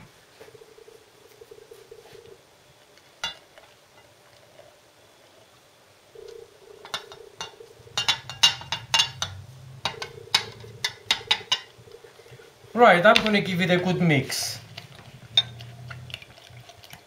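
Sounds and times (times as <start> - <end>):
bowl clinking against jug rim: 15.3 - 15.6.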